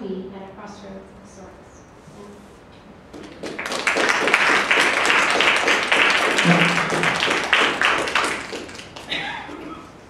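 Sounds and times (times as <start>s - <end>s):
audience applauding: 3.1s - 9.8s.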